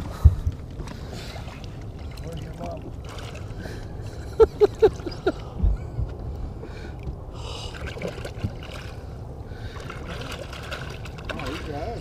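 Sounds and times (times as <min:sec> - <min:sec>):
water sloshing and gurgling: 0:00.0 - 0:12.0.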